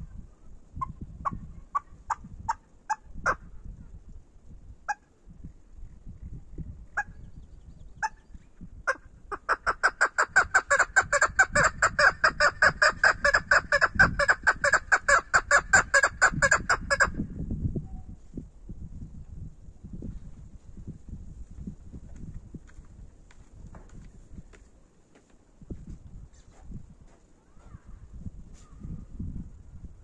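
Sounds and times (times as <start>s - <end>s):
partridge repeated chuck calls: 8.0s - 8.3s, 8.9s - 17.2s.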